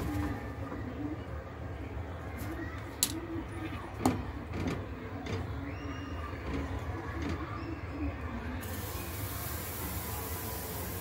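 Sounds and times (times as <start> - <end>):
batter hissing in hot pan: 8.6 - 11.0.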